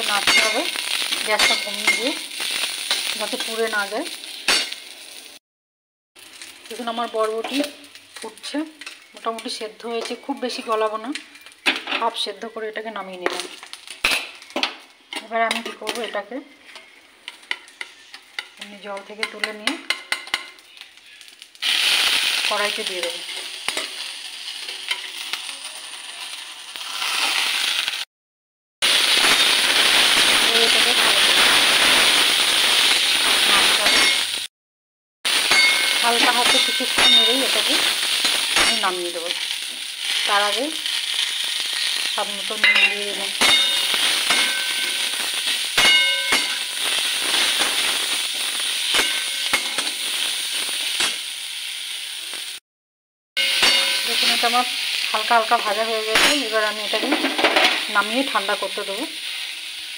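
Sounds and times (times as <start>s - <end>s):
metal spatula clanking on pan: 0.0s - 2.2s, 14.0s - 20.6s, 35.5s - 39.0s, 42.6s - 45.2s, 45.8s - 46.8s, 48.9s - 49.9s, 53.4s - 54.4s
vegetables sizzling in hot oil: 0.0s - 5.4s, 6.2s - 28.1s, 28.8s - 34.5s, 35.3s - 52.6s, 53.4s - 59.9s.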